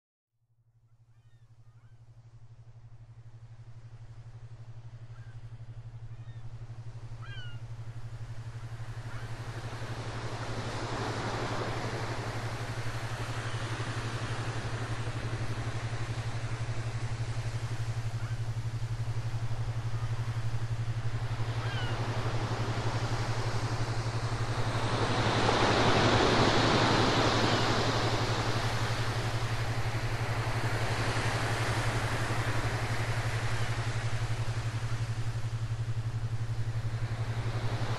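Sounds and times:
steady low hum: 0.6 - 37.9
sea waves washing in: 7.8 - 37.9.

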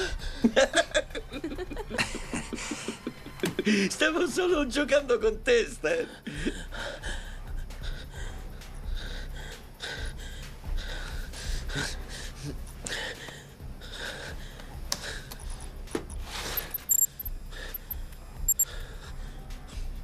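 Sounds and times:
short high computer beeps: 16.6 - 18.6.

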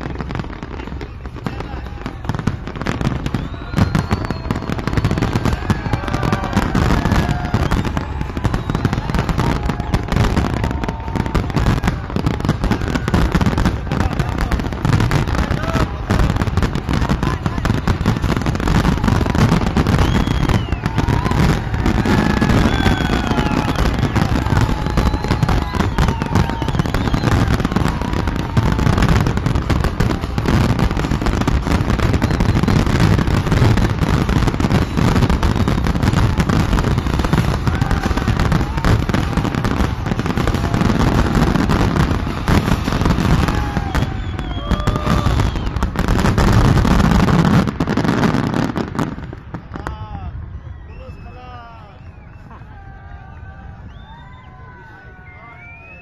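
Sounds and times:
fireworks bangs and crackles: 0.0 - 56.0.

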